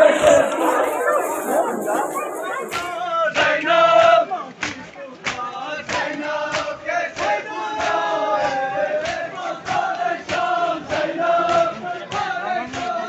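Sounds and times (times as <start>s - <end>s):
sharp rhythmic beats: 0.0s - 3.0s
crowd chanting a lament: 0.0s - 13.0s.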